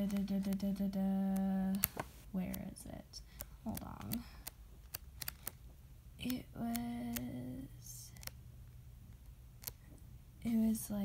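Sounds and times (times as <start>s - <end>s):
book pages flipping: 0.0s - 0.7s, 1.3s - 2.7s, 3.4s - 5.7s, 8.1s - 8.4s, 9.6s - 9.9s.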